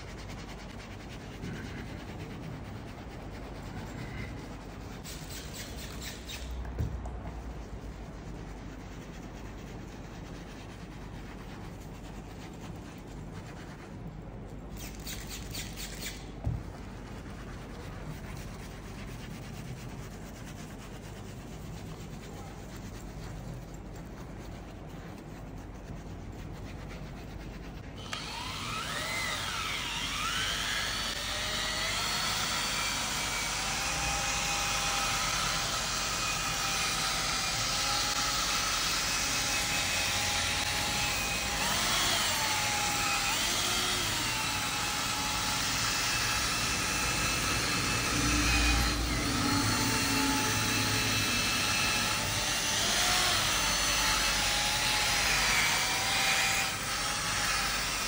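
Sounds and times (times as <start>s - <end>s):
vacuum cleaner running: 28.0s - 53.8s.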